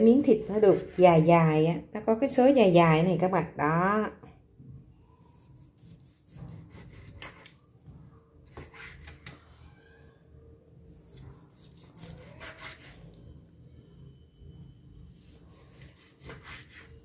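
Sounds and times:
knife slicing meat on wooden board: 0:00.5 - 0:01.0, 0:05.4 - 0:07.6, 0:08.5 - 0:09.3, 0:11.0 - 0:13.0, 0:15.1 - 0:17.0.

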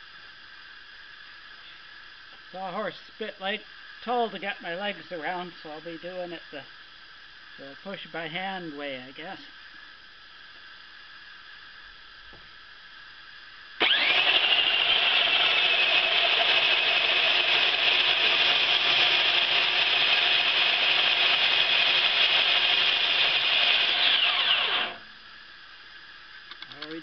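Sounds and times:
bandsaw mill whining: 0:13.8 - 0:25.2.

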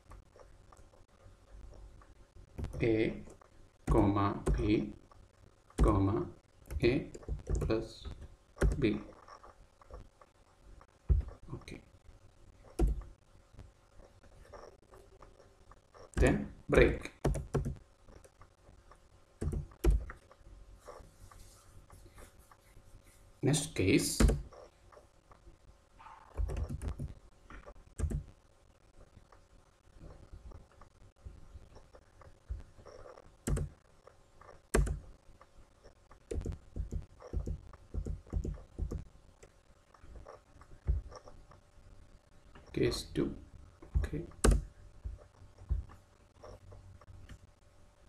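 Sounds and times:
computer keyboard typing: 0:02.6 - 0:04.8, 0:06.7 - 0:09.1, 0:16.2 - 0:18.4, 0:19.4 - 0:20.3, 0:24.2 - 0:24.5, 0:26.3 - 0:27.2, 0:27.9 - 0:28.3, 0:32.5 - 0:33.8, 0:34.4 - 0:35.1, 0:36.2 - 0:39.0.

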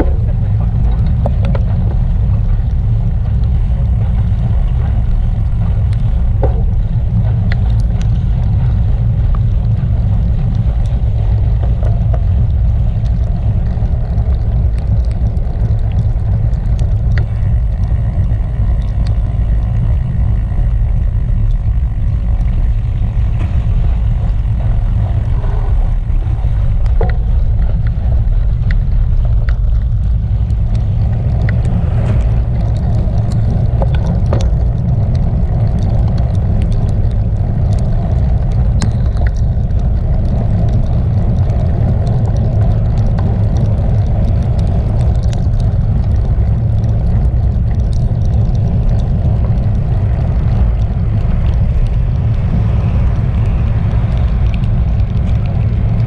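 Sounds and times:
light ticks: 0:00.0 - 0:56.0
road vibration: 0:00.0 - 0:56.0
wind rumble: 0:00.0 - 0:56.0.

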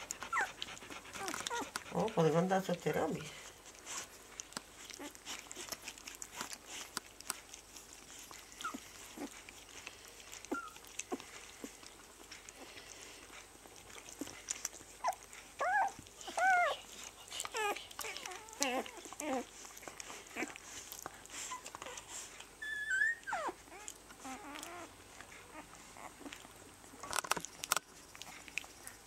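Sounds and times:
puppy squeaking and whining: 0:00.0 - 0:03.1, 0:03.7 - 0:12.4, 0:13.9 - 0:27.4
puppies suckling clicks: 0:00.0 - 0:29.0.

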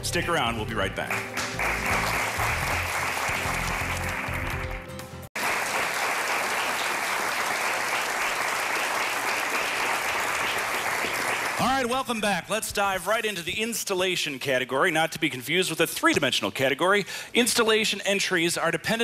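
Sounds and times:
bumper music: 0:00.0 - 0:05.3
audience applauding: 0:01.0 - 0:11.9.

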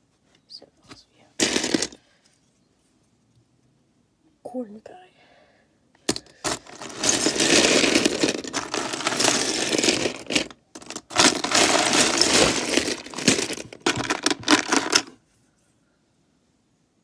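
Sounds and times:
plastic bricks clattering: 0:01.4 - 0:02.0, 0:06.1 - 0:15.2.

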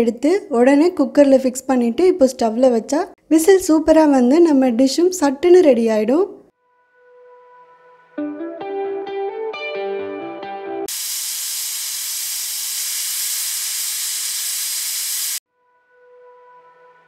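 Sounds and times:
guitar music: 0:08.1 - 0:10.9
pressure cooker whistle hissing: 0:10.9 - 0:15.4.

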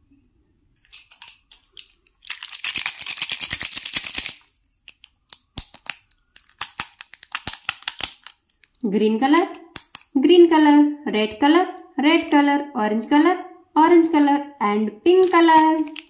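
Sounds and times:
plastic pens clattering: 0:00.8 - 0:10.2, 0:15.2 - 0:16.0.

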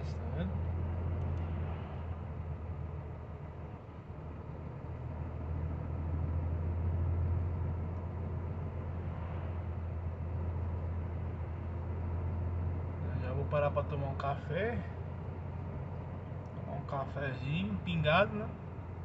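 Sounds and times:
road noise: 0:00.0 - 0:19.0
truck engine droning: 0:00.0 - 0:19.0.

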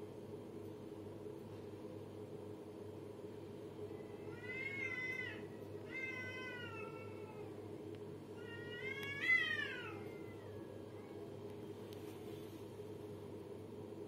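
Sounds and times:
cats yowling: 0:04.1 - 0:07.6, 0:08.4 - 0:11.2.

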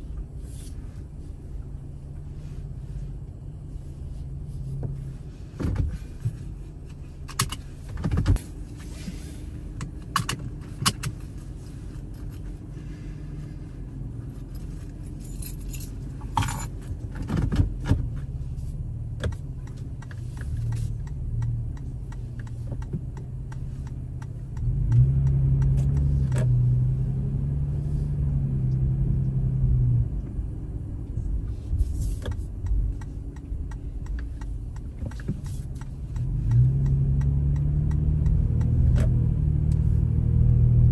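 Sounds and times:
car engine and road rumble: 0:00.0 - 0:40.9.

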